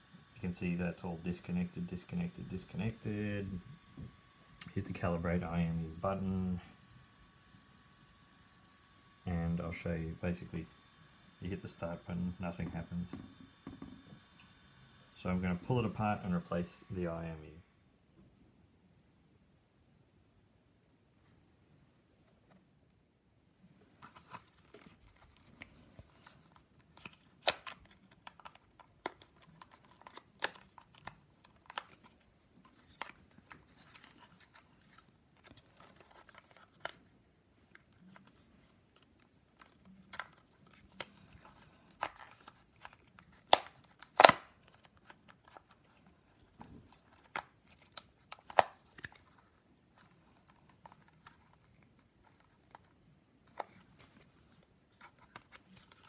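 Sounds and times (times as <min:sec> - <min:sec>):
plastic card scraping plastic shell: 0:24.0 - 0:37.1, 0:37.7 - 0:54.3
sharp plastic clicks: 0:42.8 - 0:44.8.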